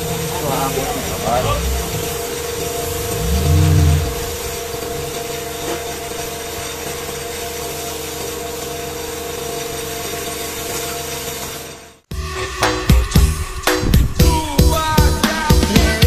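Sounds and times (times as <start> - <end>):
steady hum: 0.0 - 5.6.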